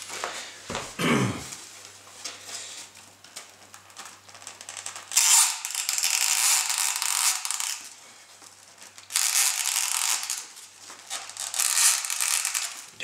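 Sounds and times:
foam rubbing and creaking: 3.6s - 7.9s, 8.6s - 13.0s.

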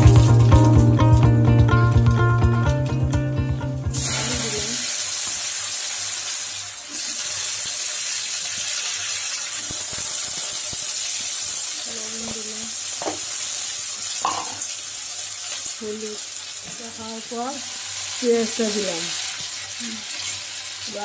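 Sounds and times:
oil sizzling in a wok: 0.0s - 21.0s
potato sticks frying: 0.0s - 21.0s.

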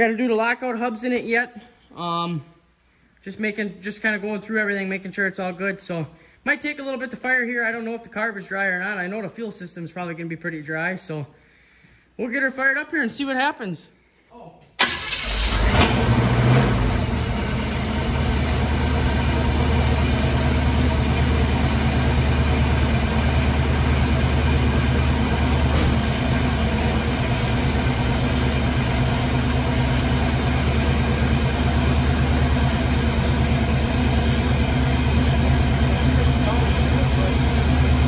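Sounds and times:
truck engine idling: 14.8s - 38.0s.

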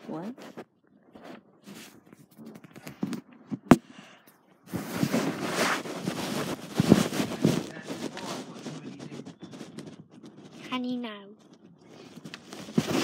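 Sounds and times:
phone rubbing and scraping: 0.0s - 3.8s, 4.6s - 13.0s.

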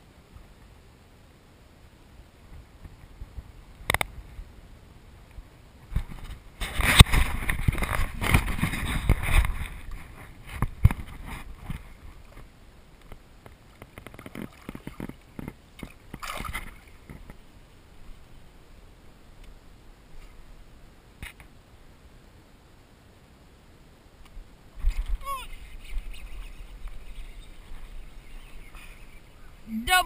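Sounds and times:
water splashing and sloshing: 5.8s - 18.4s.

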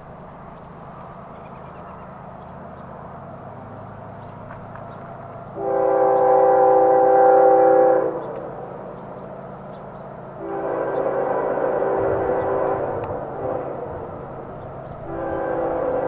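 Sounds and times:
freight locomotive rumbling: 0.0s - 16.0s
locomotive horn blast: 5.6s - 8.6s, 10.4s - 16.0s.

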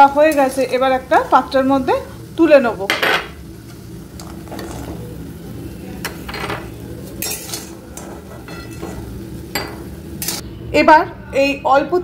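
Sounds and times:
faint oil sizzle: 0.0s - 11.9s
metal spatula scraping a pan: 7.2s - 9.1s.

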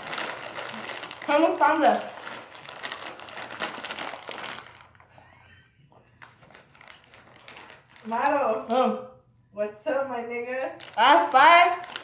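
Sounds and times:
foil chip bag crinkling: 0.0s - 5.1s, 6.2s - 8.9s, 10.7s - 12.0s.

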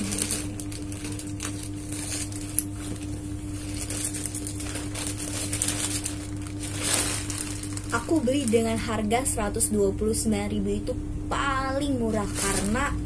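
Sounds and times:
plastic mailer bag crinkling: 0.0s - 9.3s, 12.0s - 13.0s
low electrical hum: 0.0s - 13.0s.

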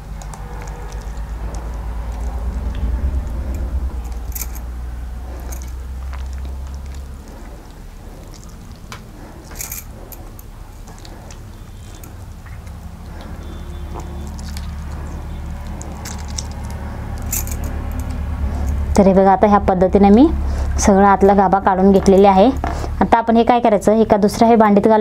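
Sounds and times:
low hum: 0.0s - 23.1s
wet squishing of fruit pulp: 5.8s - 9.4s, 10.7s - 17.2s.

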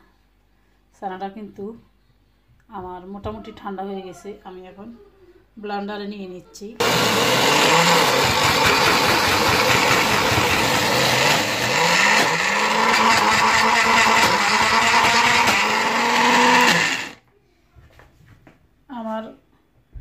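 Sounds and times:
blender motor running: 6.8s - 17.2s.

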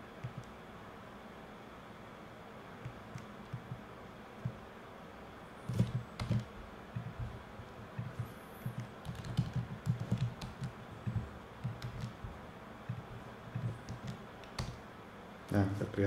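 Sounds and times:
typing on a keyboard: 5.7s - 7.3s, 8.0s - 12.3s, 12.9s - 14.8s.

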